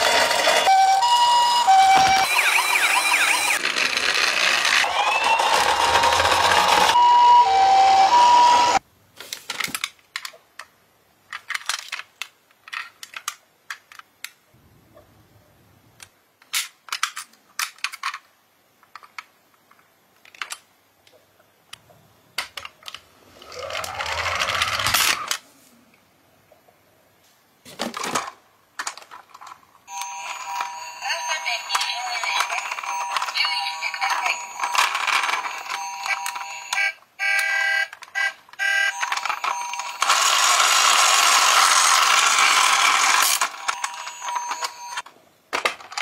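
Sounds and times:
toy electronic two-tone siren: 0:00.0 - 0:03.6, 0:04.8 - 0:08.8, 0:32.4 - 0:45.0
plastic toy cars clicking: 0:03.5 - 0:07.0, 0:09.4 - 0:14.4, 0:16.4 - 0:20.7, 0:22.4 - 0:25.4, 0:27.7 - 0:29.7, 0:31.7 - 0:46.0.

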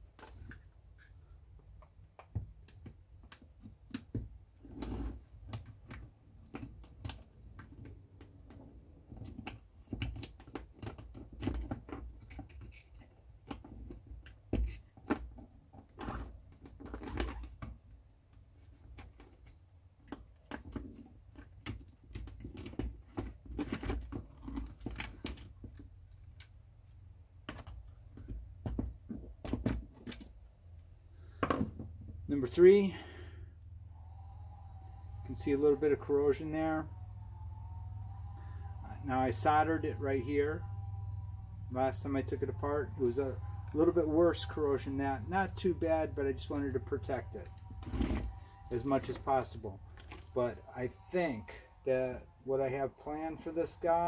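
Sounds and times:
low steady hum: 0:22.2 - 0:54.0.

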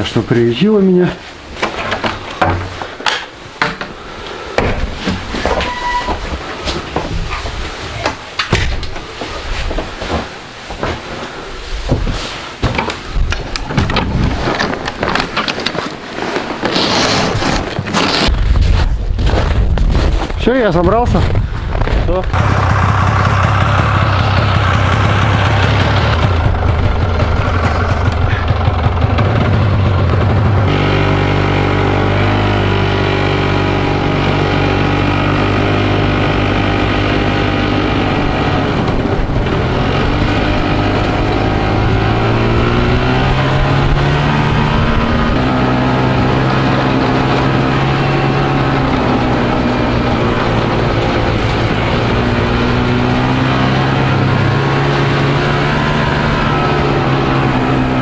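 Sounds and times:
snowmobile engine revving: 0:22.3 - 0:58.0.

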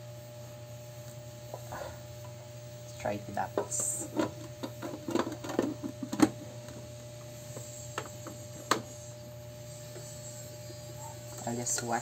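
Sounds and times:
low steady hum: 0:00.0 - 0:12.0
plastic clicks and knocks: 0:04.2 - 0:06.4.

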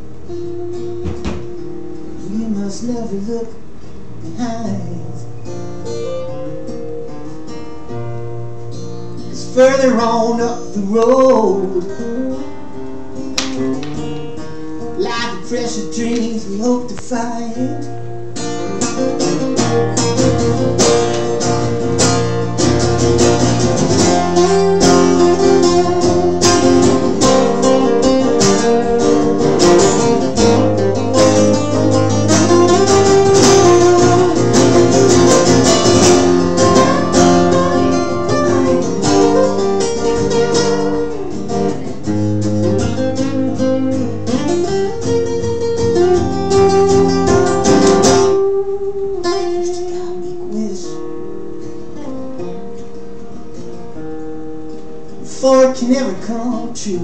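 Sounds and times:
acoustic guitar strumming: 0:00.0 - 0:57.0
sliding guitar melody: 0:00.0 - 0:57.0.

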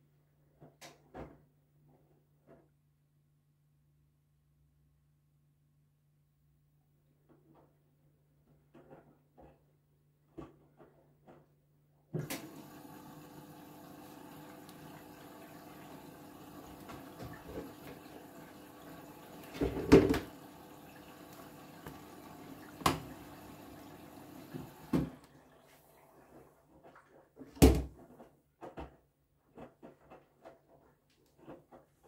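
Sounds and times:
washing machine humming: 0:12.2 - 0:28.0.

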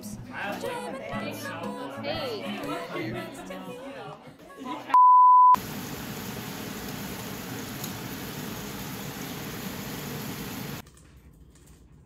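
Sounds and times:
short high beep: 0:05.0 - 0:05.6.

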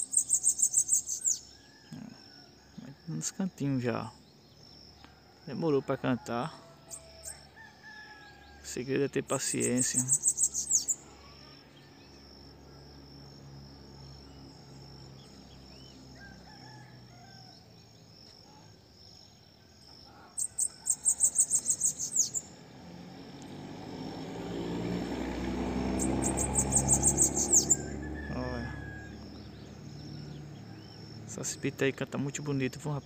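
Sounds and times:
bird singing high falling notes: 0:23.9 - 0:30.9.

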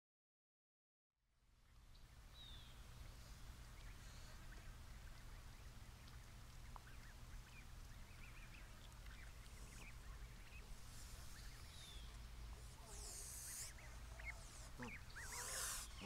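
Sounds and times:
steady low hum: 0:01.3 - 0:16.0
high bird chirps: 0:13.0 - 0:16.0.

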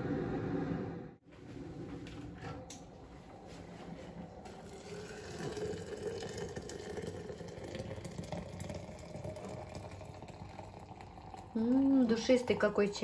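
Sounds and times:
water pouring into teapot: 0:04.1 - 0:13.0.

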